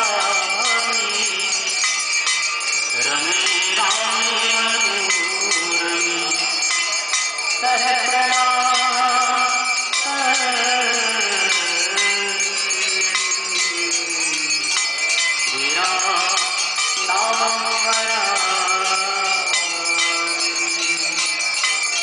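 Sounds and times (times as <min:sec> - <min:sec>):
bells ringing: 0:00.0 - 0:22.0
man singing a hymn: 0:03.0 - 0:06.5, 0:07.6 - 0:14.7, 0:15.5 - 0:21.3.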